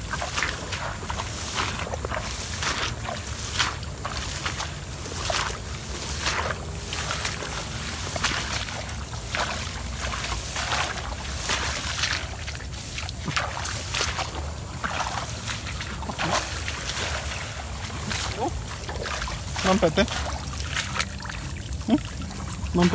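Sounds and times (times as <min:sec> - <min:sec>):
footsteps swishing through grass: 0:00.0 - 0:22.9.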